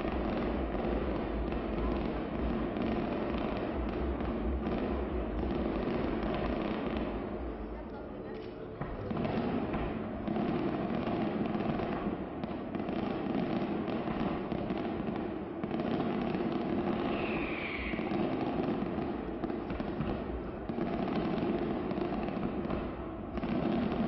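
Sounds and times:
fireworks crackling and banging: 0:00.0 - 0:24.0
firework high whistle: 0:17.0 - 0:18.4.

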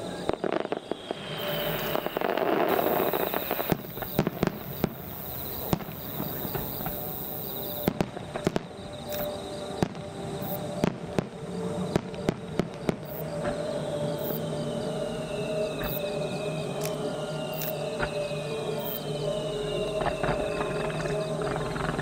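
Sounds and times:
distant fireworks bangs: 0:00.0 - 0:07.1, 0:07.8 - 0:10.0.

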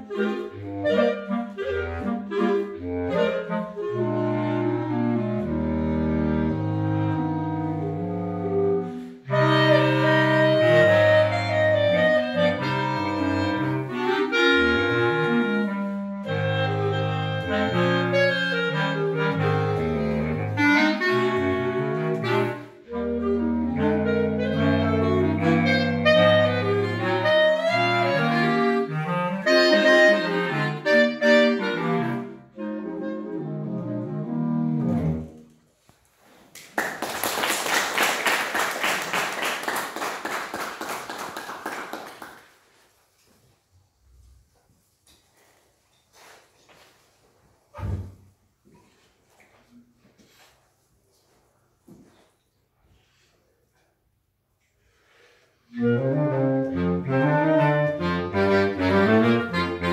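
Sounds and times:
clarinet quartet playing: 0:00.0 - 0:35.6, 0:55.7 - 0:59.9.

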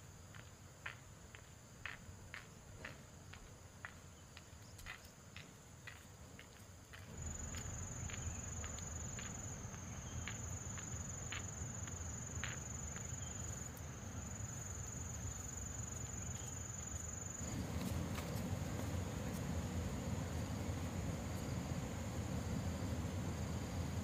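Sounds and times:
low outdoor rumble: 0:06.9 - 0:24.0
insect trill: 0:07.0 - 0:24.0.

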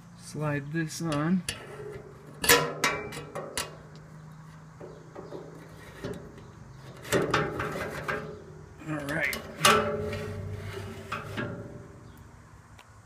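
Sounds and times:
metal rail clicks and knocks: 0:01.0 - 0:04.0, 0:04.8 - 0:12.0
metal scraping: 0:01.0 - 0:12.3
metal clatter: 0:01.1 - 0:03.9, 0:04.8 - 0:12.2.

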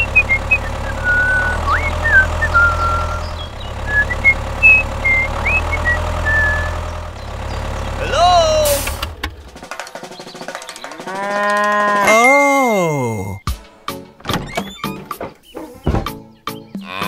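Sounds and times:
rising whistles and chirps: 0:00.0 - 0:07.6
low engine hum: 0:00.0 - 0:09.7.

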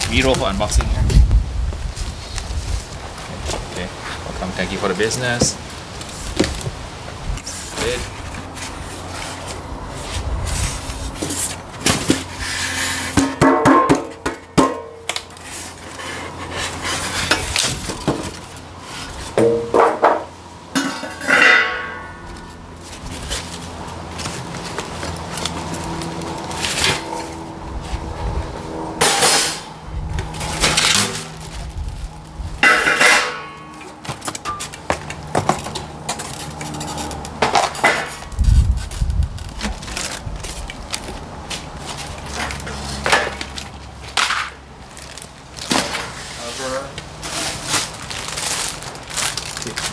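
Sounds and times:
cardboard and plastic wrap rustling: 0:00.0 - 0:13.1, 0:15.1 - 0:19.6, 0:22.3 - 0:28.3, 0:30.0 - 0:32.6, 0:33.8 - 0:49.9.

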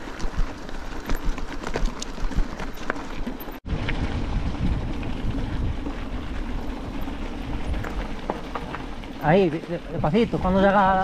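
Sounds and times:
wind rumble on microphone: 0:03.7 - 0:11.0.

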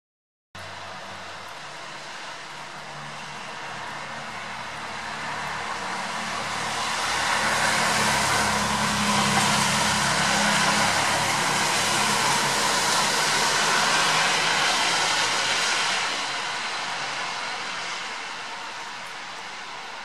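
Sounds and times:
rain hissing: 0:00.6 - 0:20.0
vehicle passing: 0:05.0 - 0:18.1.

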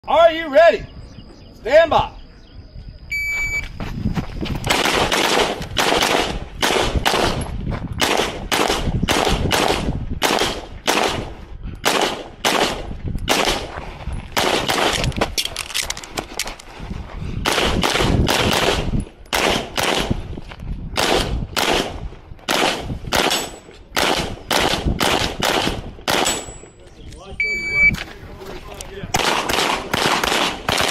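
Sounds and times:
shot timer beep: 0:03.1 - 0:03.7, 0:27.4 - 0:28.0
pistol shots: 0:04.7 - 0:07.4, 0:08.0 - 0:13.7, 0:14.4 - 0:15.1, 0:17.4 - 0:20.2, 0:21.0 - 0:26.6, 0:29.2 - 0:30.9.

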